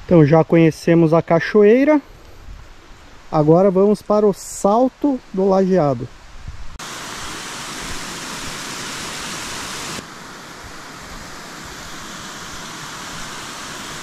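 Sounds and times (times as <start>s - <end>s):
waterfall rushing: 6.8s - 14.0s.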